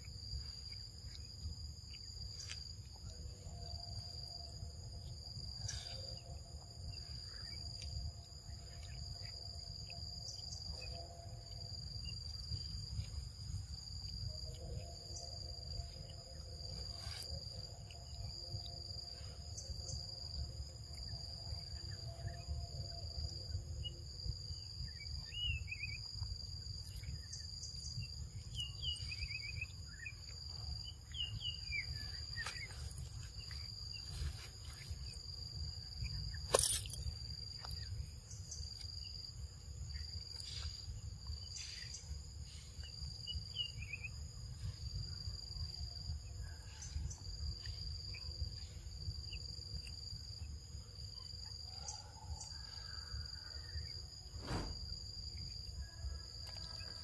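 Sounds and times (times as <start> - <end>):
insects chorus: 0.0 - 57.0.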